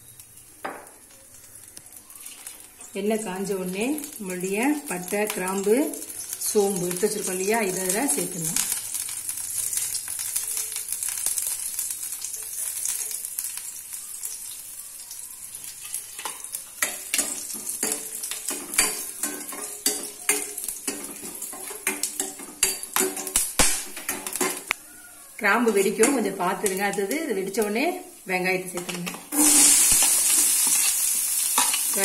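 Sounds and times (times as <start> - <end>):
spices sizzling in hot oil: 0.0 - 32.0
steel spoon scraping a pan: 15.8 - 23.4.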